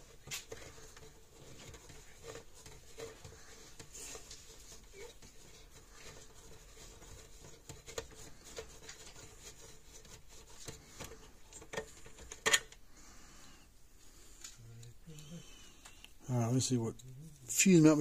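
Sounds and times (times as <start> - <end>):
fuse holder clicks and rubbing: 10.0 - 12.8.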